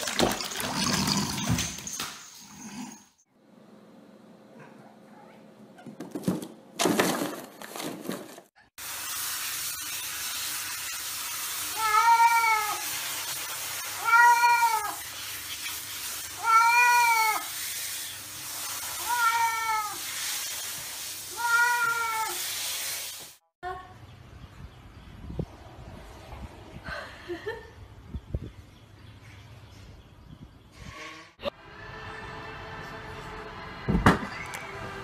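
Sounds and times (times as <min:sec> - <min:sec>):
running shower water: 0:08.8 - 0:23.4.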